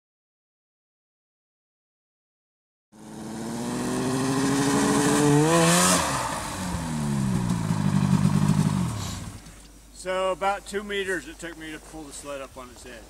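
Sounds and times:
snowmobile engine revving: 0:03.0 - 0:09.4.

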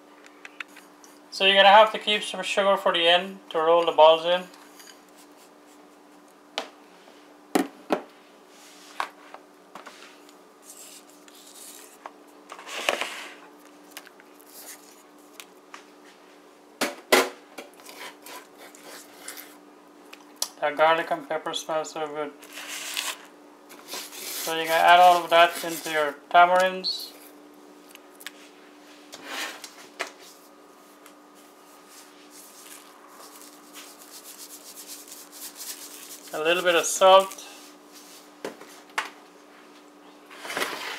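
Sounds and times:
faint steady hum: 0:00.0 - 0:40.9
soft rustle: 0:30.2 - 0:36.4.

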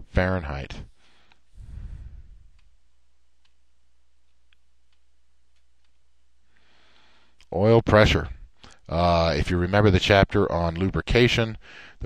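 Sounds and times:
steady low hum: 0:00.0 - 0:12.0
faint clicks: 0:02.5 - 0:02.8, 0:03.4 - 0:03.6, 0:04.2 - 0:06.7.

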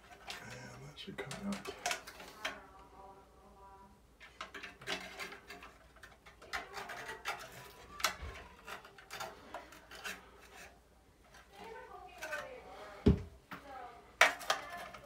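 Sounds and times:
sheet metal clicks and scrapes: 0:00.0 - 0:02.7, 0:04.2 - 0:12.6, 0:14.2 - 0:15.0.

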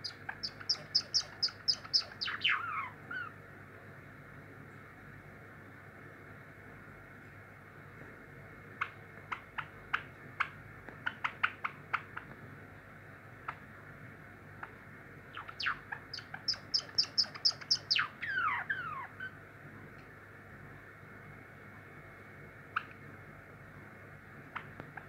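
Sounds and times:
sparrow singing: 0:00.0 - 0:03.3, 0:15.3 - 0:19.4.

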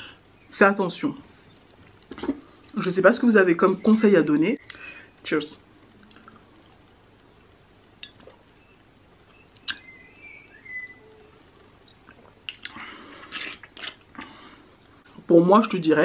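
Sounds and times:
breathy exhale: 0:04.7 - 0:05.2.

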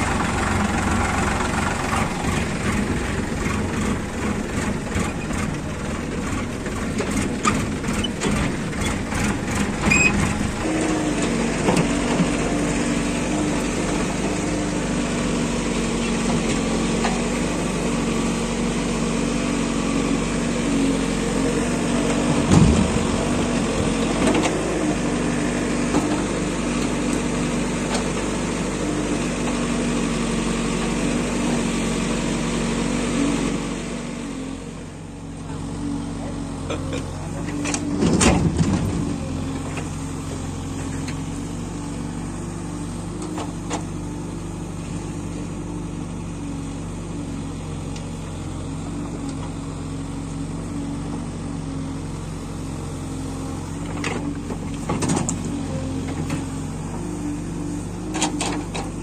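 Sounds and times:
diesel engine running: 0:00.0 - 0:59.0
thump: 0:22.4 - 0:23.1.

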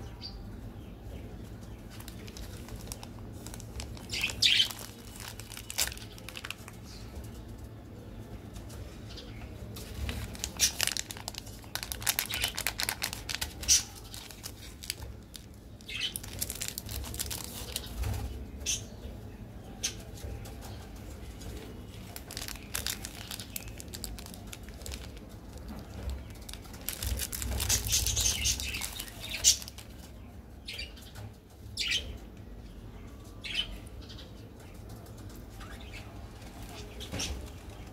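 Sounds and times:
plastic wrappers crinkling: 0:01.8 - 0:07.0, 0:09.6 - 0:18.4, 0:21.3 - 0:30.3, 0:35.2 - 0:37.9.

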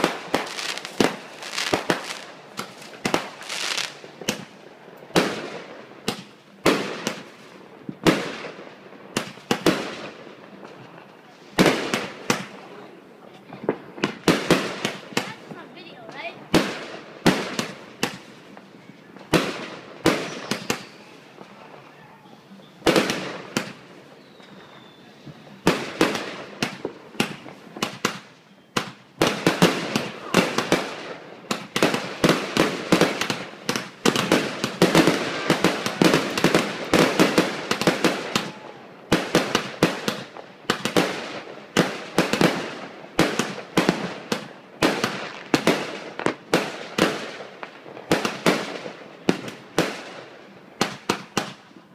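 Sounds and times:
fireworks bangs: 0:00.0 - 0:51.8.

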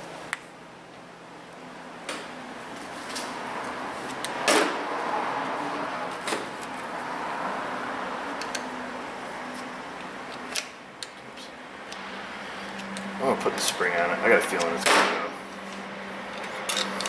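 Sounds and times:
hand tools clinking on metal: 0:16.4 - 0:17.0.

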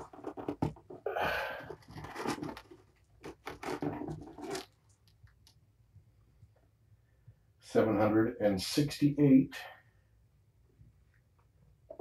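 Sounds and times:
kitten claws scratching plastic: 0:00.0 - 0:05.5.

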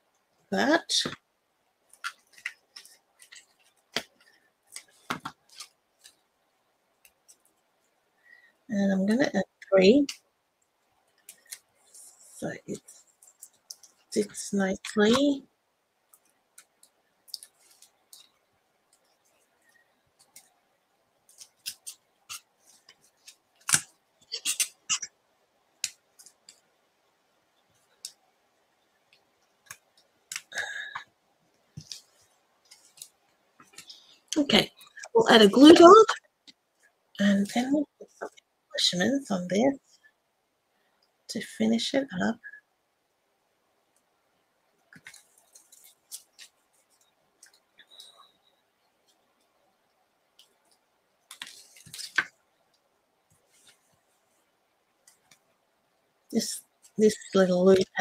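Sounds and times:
paper and cardstock rustling: 0:50.5 - 0:52.4.

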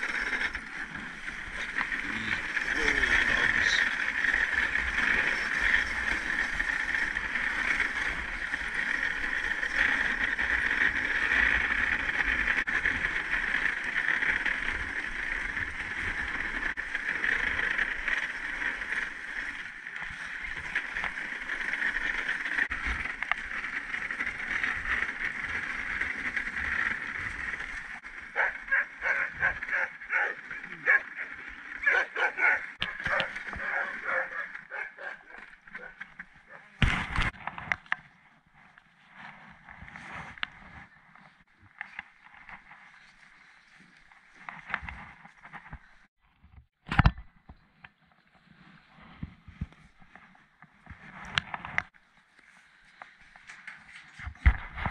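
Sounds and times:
sled runners hissing over snow: 0:00.0 - 0:37.2
dog barks: 0:28.4 - 0:35.9.

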